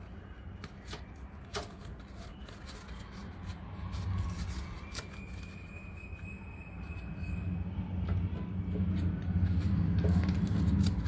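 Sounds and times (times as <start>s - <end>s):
low steady rumble: 6.6s - 11.0s.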